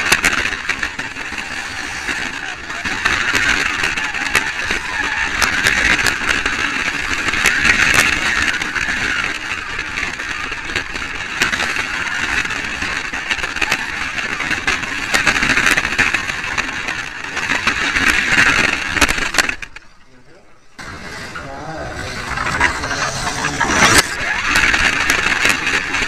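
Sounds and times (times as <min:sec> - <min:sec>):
slot car motor whirring: 0:20.8 - 0:26.0
sharp clicks: 0:22.2 - 0:26.0.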